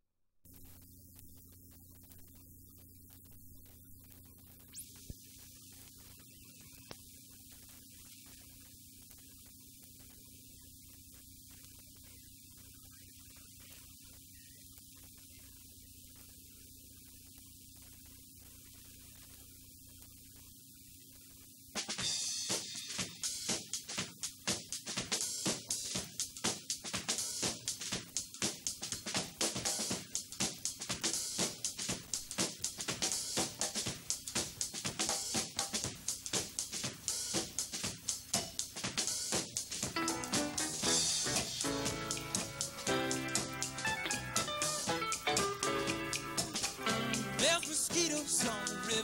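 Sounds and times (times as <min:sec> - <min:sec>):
mains hum: 0:00.4 - 0:49.0
tape hiss: 0:00.4 - 0:49.0
music with drums and cymbals: 0:21.7 - 0:49.0.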